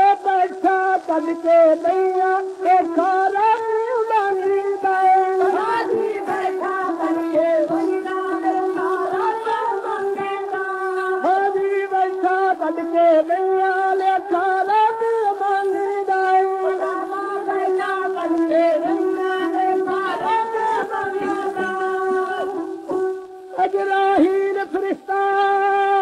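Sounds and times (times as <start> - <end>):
devotional song on old record: 0.0 - 26.0.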